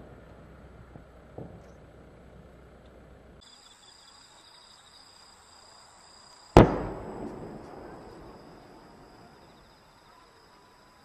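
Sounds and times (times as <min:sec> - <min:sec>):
crickets chirping: 0:01.6 - 0:11.0
firework bang: 0:06.6 - 0:09.4.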